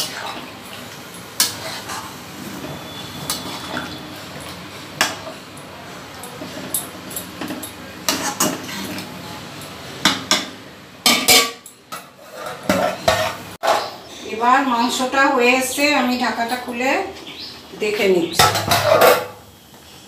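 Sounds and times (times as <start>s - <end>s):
metal spoon scraping a pan: 0.0s - 0.4s, 1.4s - 5.4s, 8.1s - 9.1s, 11.2s - 13.9s.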